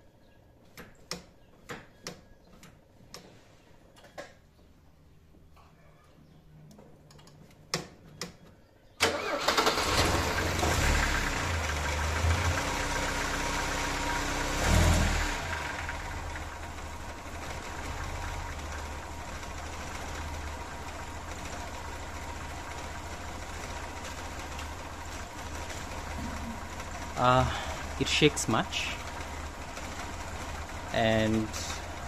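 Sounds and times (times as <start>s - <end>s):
car engine starting and idling: 9.0s - 32.0s.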